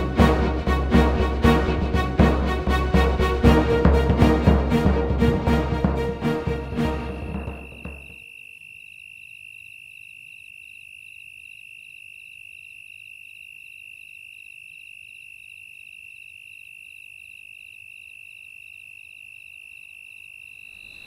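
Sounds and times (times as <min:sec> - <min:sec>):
insect steady high trill: 0:06.3 - 0:21.0
insect pulsing chirp: 0:07.3 - 0:21.0.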